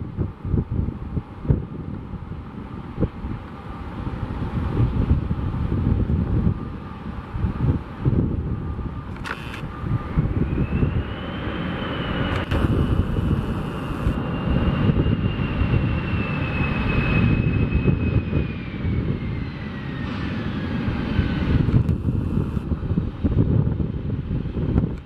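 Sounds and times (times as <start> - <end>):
jet engines running hard: 0.0 - 25.0
high engine whine: 0.1 - 25.0
dense low rumble: 12.2 - 16.0, 17.2 - 25.0.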